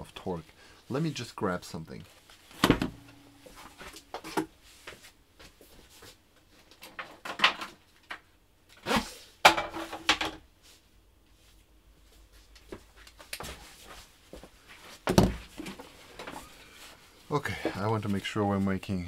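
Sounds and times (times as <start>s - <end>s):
drawers opening and shutting: 2.5s - 4.5s.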